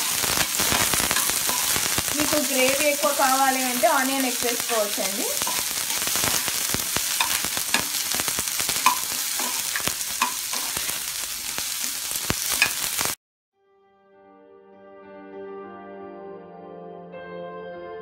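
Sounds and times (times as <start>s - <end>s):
spoon scraping a frying pan: 0.0s - 2.8s, 4.6s - 13.0s
onions sizzling in hot oil: 0.0s - 13.2s
soft music: 13.6s - 18.0s.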